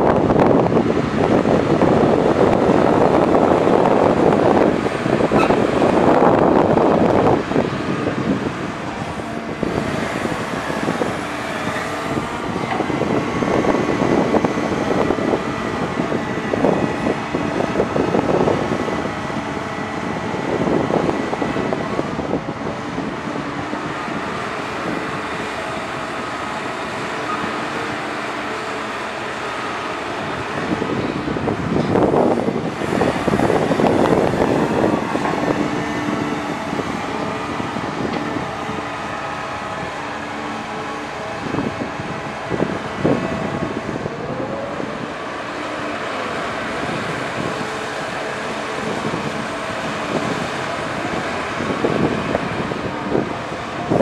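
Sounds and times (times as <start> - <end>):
excavator diesel engine running: 0.0 - 54.0
thin engine whine: 0.0 - 54.0.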